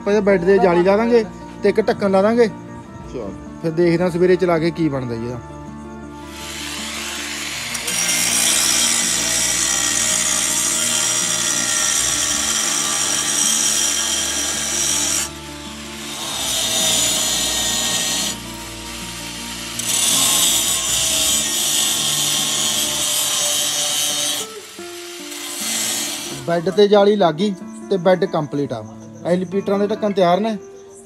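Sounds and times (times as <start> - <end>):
power tool running under load: 6.2 - 26.7.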